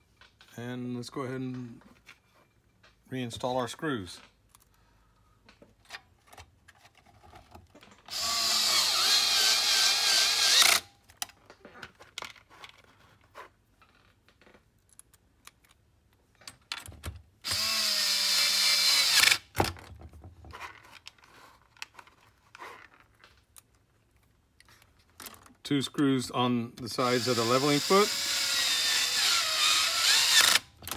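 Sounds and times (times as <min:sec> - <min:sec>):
cordless drill driving screws: 0:08.1 - 0:10.9, 0:17.4 - 0:19.6, 0:26.9 - 0:30.9.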